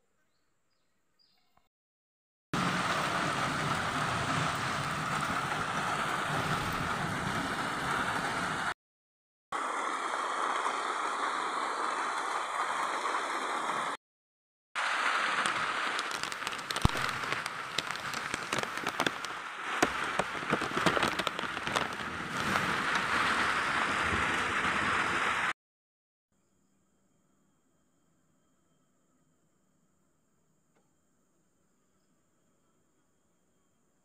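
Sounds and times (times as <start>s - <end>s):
steady rain hissing: 2.6s - 8.8s, 9.6s - 14.0s, 14.8s - 25.6s
sharp taps and crackles: 15.4s - 23.2s.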